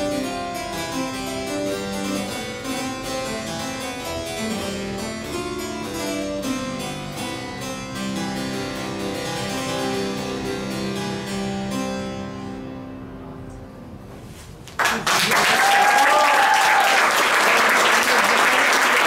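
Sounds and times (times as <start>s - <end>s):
harpsichord playing: 0.0s - 14.0s
audience applauding: 14.8s - 19.0s.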